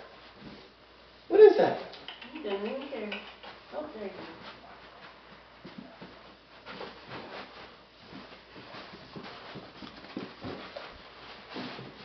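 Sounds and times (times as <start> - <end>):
puppy scrambling on carpet: 2.8 - 12.0.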